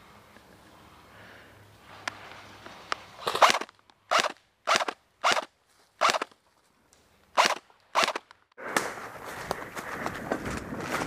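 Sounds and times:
airsoft rifle bursts: 3.2 - 6.3, 7.4 - 8.3.

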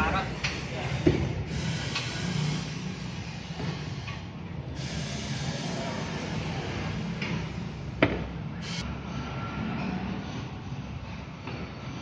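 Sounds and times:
tyre-changing machine humming: 0.4 - 8.0.

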